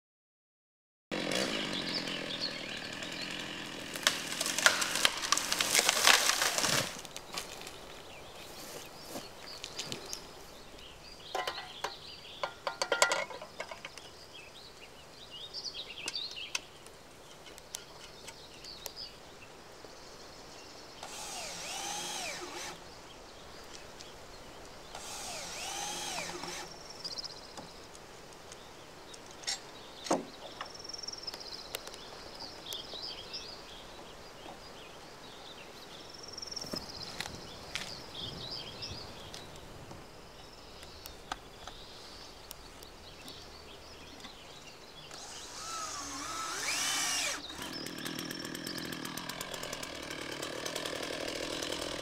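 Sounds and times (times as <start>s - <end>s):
chainsaw running: 1.1s - 7.6s, 21.0s - 22.9s, 24.9s - 26.8s, 45.1s - 52.0s
metal clicks and knocks: 11.4s - 14.0s.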